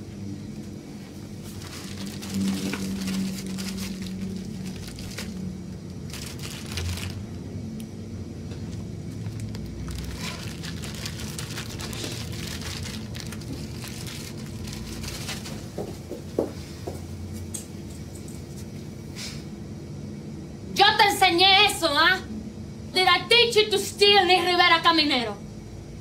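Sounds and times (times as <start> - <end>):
low steady hum: 0.0 - 26.0
plastic bag rustling: 1.2 - 7.5, 8.5 - 16.2.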